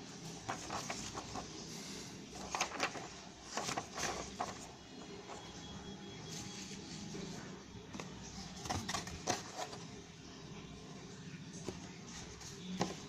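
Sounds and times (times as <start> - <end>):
hands handling cardboard and paper: 0.2 - 5.6, 6.2 - 10.0, 11.6 - 13.0.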